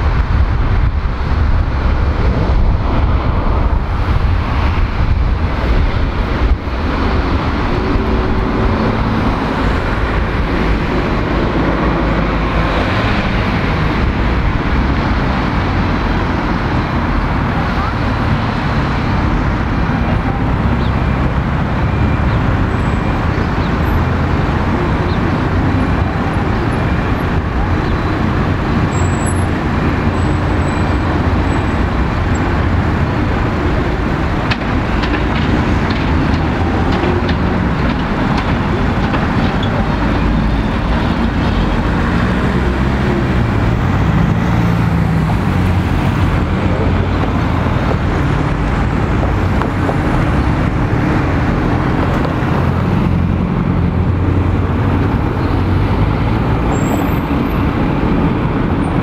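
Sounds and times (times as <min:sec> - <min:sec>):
cars passing: 0:00.0 - 0:59.0
city street traffic: 0:00.0 - 0:59.0
tram on tracks: 0:00.0 - 0:59.0.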